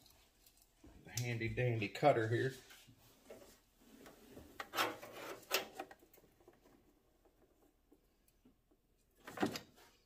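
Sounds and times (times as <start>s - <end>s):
hose rubbing and scraping: 2.6s - 5.6s.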